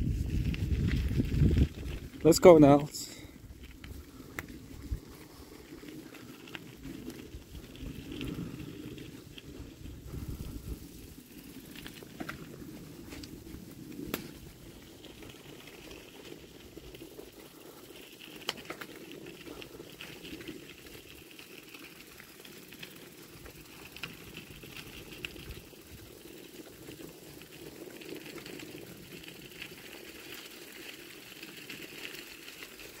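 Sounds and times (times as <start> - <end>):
bike rattles and clicks: 0.0 - 33.0
bike tyre hiss and splash: 7.2 - 20.3.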